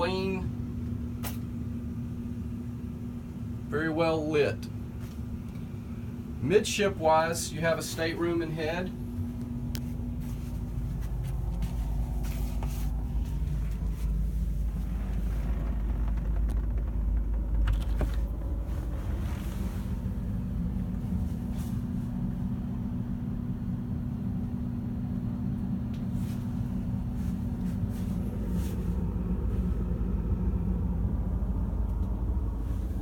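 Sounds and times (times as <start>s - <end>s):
low mechanical hum and rumble: 0.0s - 33.0s.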